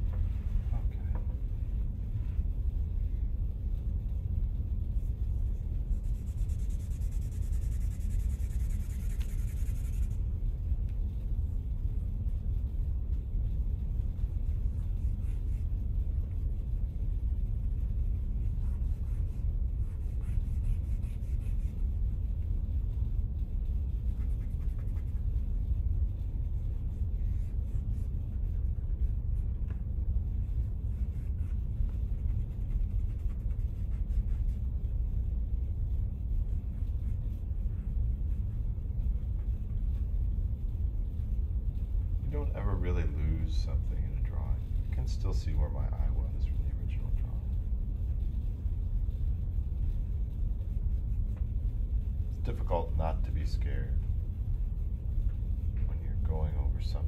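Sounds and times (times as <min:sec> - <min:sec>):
low rumble: 0:00.0 - 0:57.0
pencil scratching on paper: 0:05.9 - 0:10.2, 0:18.4 - 0:21.9, 0:24.0 - 0:25.3.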